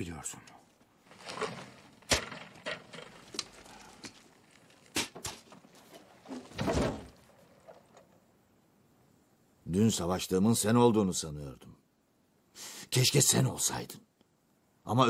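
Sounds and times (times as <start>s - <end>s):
rustle: 0.5s - 9.6s.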